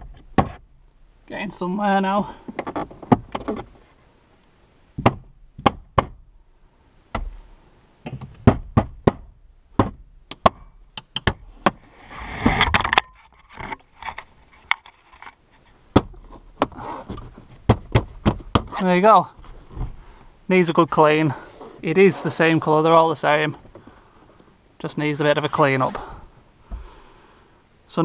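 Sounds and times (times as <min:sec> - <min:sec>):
scraping rustle: 0:02.4 - 0:04.2, 0:11.8 - 0:17.7, 0:20.9 - 0:24.4, 0:25.1 - 0:26.4
hands thumping on plastic dashboard: 0:08.1 - 0:11.8, 0:15.9 - 0:18.8.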